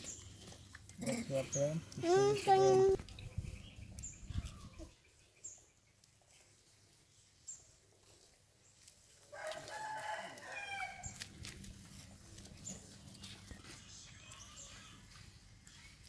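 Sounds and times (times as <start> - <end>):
rooster crowing: 9.3 - 11.2.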